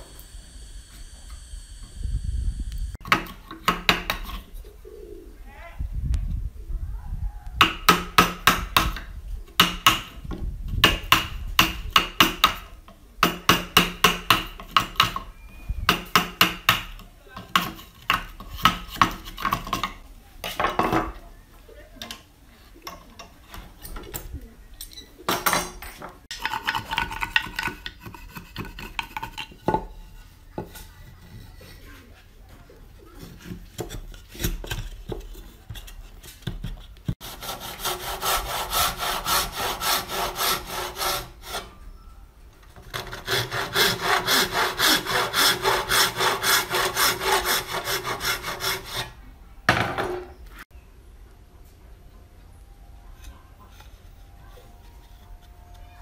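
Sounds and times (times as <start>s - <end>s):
chisel knocking and scraping wood: 3.0s - 4.5s, 7.6s - 15.3s, 15.9s - 21.2s, 25.4s - 31.6s, 33.2s - 37.2s
hand saw cutting wood: 15.9s - 20.0s, 26.3s - 29.6s, 37.2s - 41.8s, 42.8s - 49.2s.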